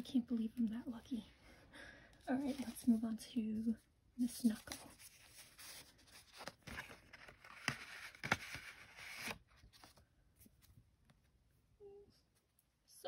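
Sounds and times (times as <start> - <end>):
paper rustling and sliding: 4.4 - 10.7.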